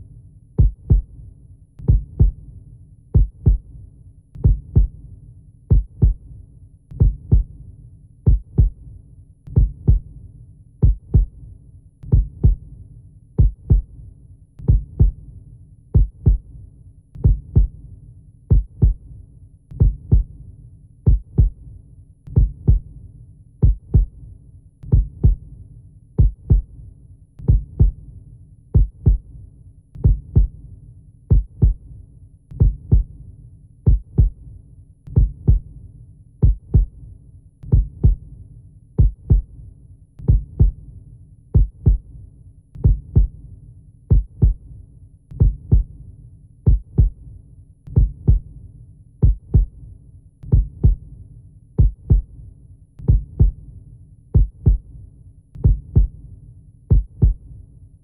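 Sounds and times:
heartbeat thumps: 0.6 - 1.1, 1.8 - 2.4, 3.2 - 3.7, 4.4 - 5.0, 5.7 - 6.2, 7.0 - 7.5, 8.3 - 8.8, 9.5 - 10.1, 10.8 - 11.4, 12.1 - 12.6, 13.4 - 13.9, 14.6 - 15.2, 16.0 - 16.5, 17.2 - 17.8, 18.5 - 19.0, 19.8 - 20.3, 21.1 - 21.6, 22.3 - 22.9, 23.6 - 24.2, 24.9 - 25.4, 26.2 - 26.7, 27.4 - 28.0, 28.8 - 29.3, 30.0 - 30.6, 31.3 - 31.8, 32.6 - 33.1, 33.9 - 34.4, 35.1 - 35.7, 36.4 - 37.0, 37.7 - 38.2, 39.0 - 39.5, 40.2 - 40.8, 41.6 - 42.1, 42.8 - 43.4, 44.1 - 44.6, 45.4 - 45.9, 46.7 - 47.2, 47.9 - 48.5, 49.2 - 49.8, 50.5 - 51.0, 51.8 - 52.3, 53.0 - 53.6, 54.4 - 54.9, 55.6 - 56.2, 56.9 - 57.4.

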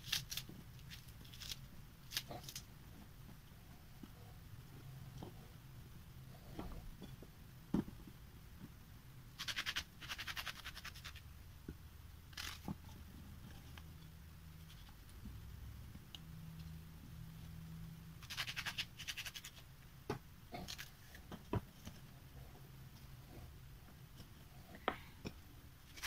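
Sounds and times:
knife scraping onion skin: 9.4 - 11.2, 18.2 - 19.6.

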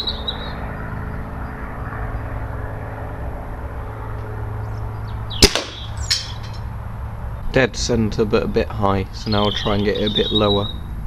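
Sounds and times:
low rumble: 0.0 - 9.3
air rifle shot crack: 5.4 - 6.4.

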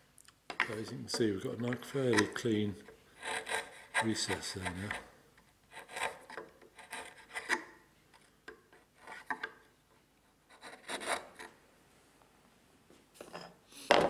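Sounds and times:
chisel paring wood: 0.5 - 5.1, 5.7 - 7.8, 10.6 - 11.5.

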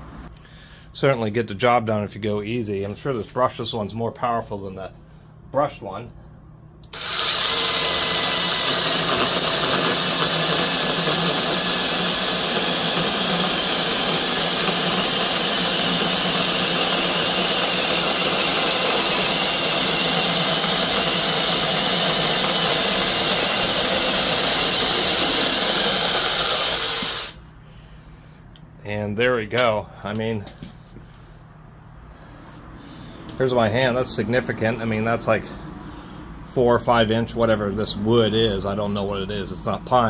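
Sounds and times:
chainsaw cutting log: 6.9 - 27.4.

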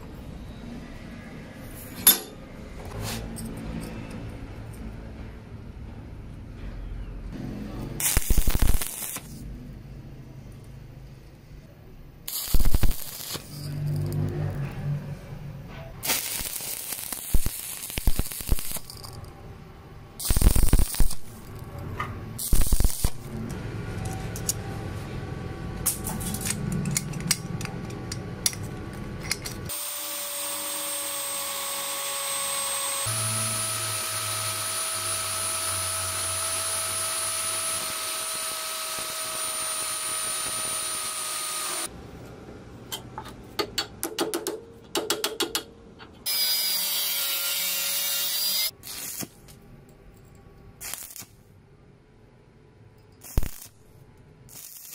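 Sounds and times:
arc welding crackling: 8.0 - 9.5, 12.2 - 14.3, 16.0 - 19.3, 20.2 - 21.7, 22.4 - 23.5, 29.7 - 41.9, 46.3 - 49.5, 50.8 - 51.4, 53.2 - 54.9
electric drill boring steel: 29.7 - 41.9, 46.3 - 48.7.

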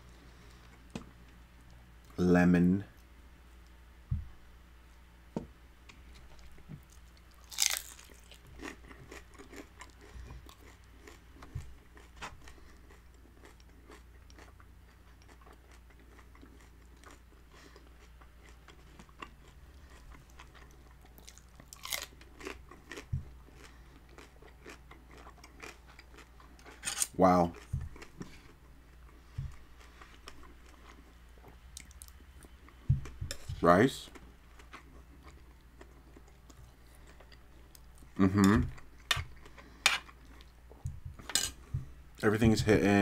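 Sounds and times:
crisp taco crunches: 6.3 - 28.3
chewing: 6.3 - 33.2.

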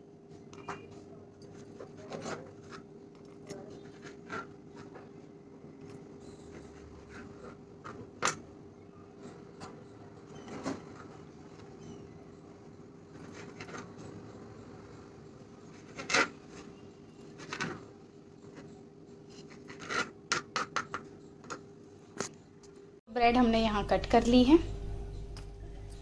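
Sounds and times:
knife cutting bread: 1.5 - 5.3
faint steady hum: 20.9 - 26.0.

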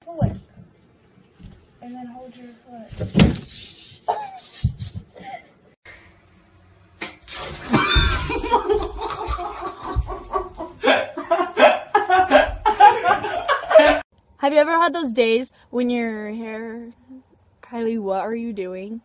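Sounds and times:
young men laughing loudly: 8.1 - 14.0.

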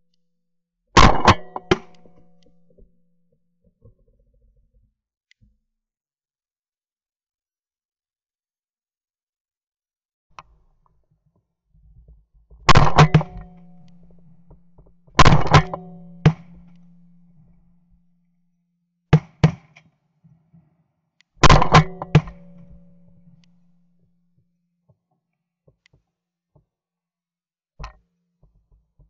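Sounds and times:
shotgun blasts: 15.2 - 16.8.

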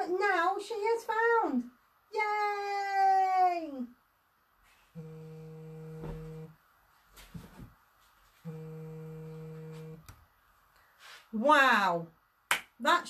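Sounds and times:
low humming tone: 5.0 - 6.6, 8.4 - 10.2
soft rustle: 6.0 - 8.8, 9.4 - 11.4.

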